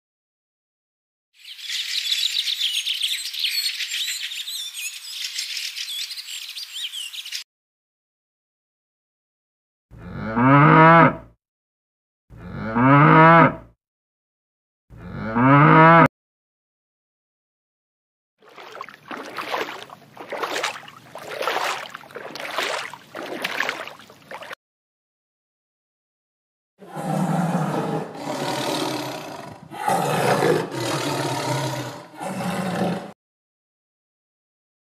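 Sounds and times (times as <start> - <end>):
cow mooing: 9.9 - 11.3, 12.3 - 13.7, 14.9 - 16.1, 26.8 - 33.2.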